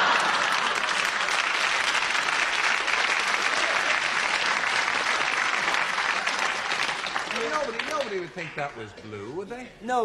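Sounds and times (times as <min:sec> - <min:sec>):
audience clapping: 0:00.0 - 0:09.2.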